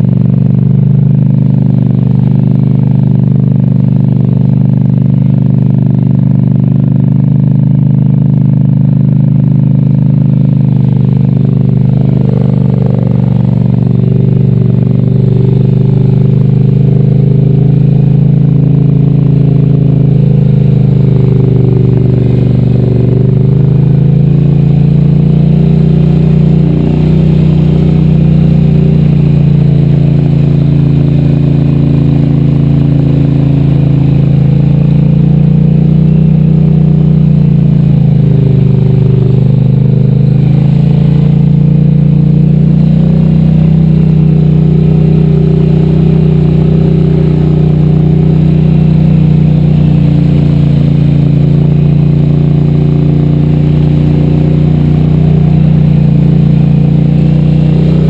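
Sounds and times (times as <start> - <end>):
atv engine running: 0.0 - 58.0
quad wading through river: 15.1 - 58.0.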